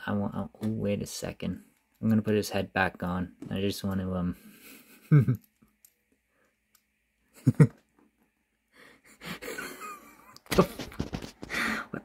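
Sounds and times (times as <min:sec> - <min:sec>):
plastic toy handling noise: 0:10.6 - 0:11.6.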